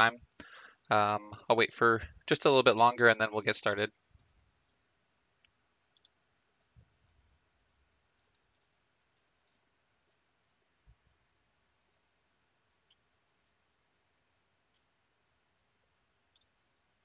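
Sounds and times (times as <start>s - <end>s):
faint clicks: 0.3s - 0.9s, 4.1s - 6.2s, 8.1s - 10.6s, 11.8s - 13.6s, 16.3s - 17.0s.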